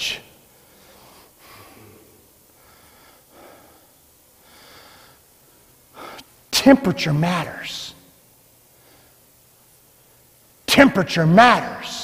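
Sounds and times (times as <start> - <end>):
man breathing: 0.5 - 6.4, 8.7 - 9.4.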